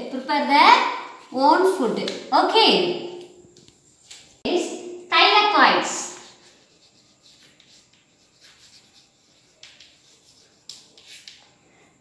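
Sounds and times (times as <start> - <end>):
chalk scratching on blackboard: 5.8 - 11.5.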